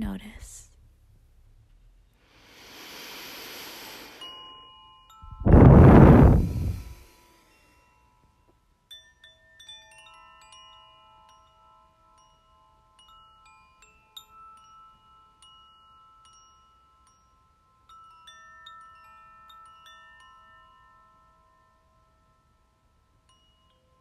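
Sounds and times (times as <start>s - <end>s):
metal chimes ringing: 6.8s - 24.0s.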